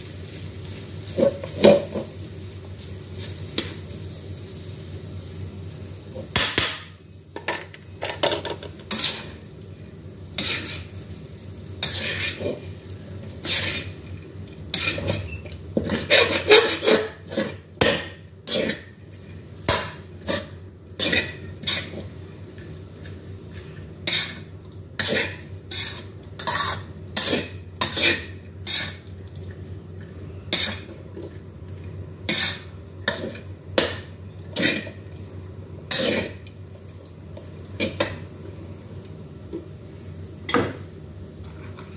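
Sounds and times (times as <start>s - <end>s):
spatula scraping metal wok: 8.9s - 9.4s, 10.4s - 11.0s, 11.8s - 12.7s, 13.3s - 14.0s, 14.7s - 19.0s, 19.7s - 22.2s, 23.0s - 29.1s, 30.5s - 30.9s, 32.3s - 33.9s, 34.5s - 35.0s, 35.9s - 36.4s.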